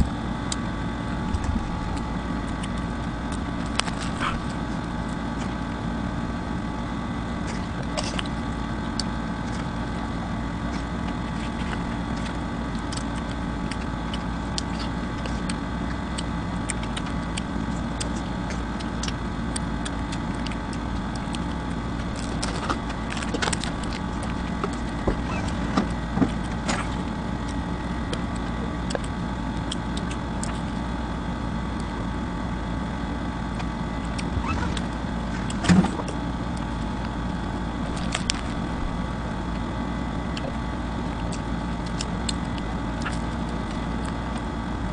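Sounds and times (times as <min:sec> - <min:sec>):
steady mechanical hum: 0:00.0 - 0:44.9
chewing clicks and crackles: 0:00.3 - 0:05.7, 0:07.4 - 0:10.0, 0:10.6 - 0:32.2, 0:33.2 - 0:44.8.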